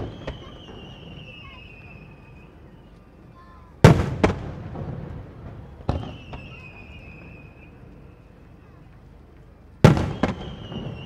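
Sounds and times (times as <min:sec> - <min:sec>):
fireworks booming: 0:00.0 - 0:02.7, 0:03.7 - 0:08.8, 0:09.8 - 0:11.0
high falling whistle: 0:05.9 - 0:07.8.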